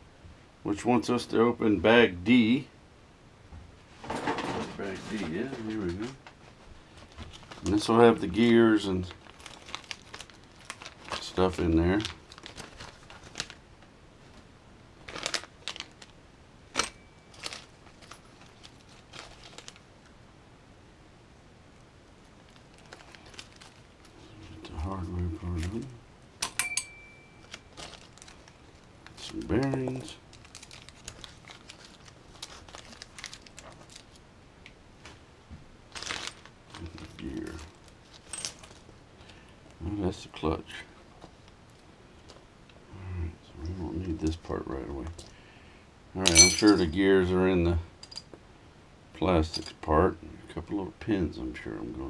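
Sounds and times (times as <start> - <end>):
plastic bag crinkling: 6.9 - 14.4, 15.0 - 20.1, 22.3 - 24.3, 27.4 - 34.2, 35.9 - 39.4.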